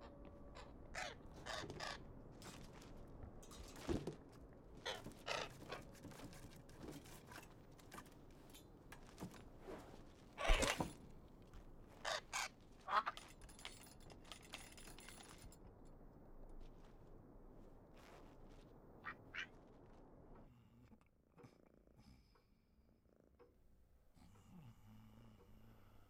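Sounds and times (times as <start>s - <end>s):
quiet scrapes and rattles: 1.0s - 15.7s.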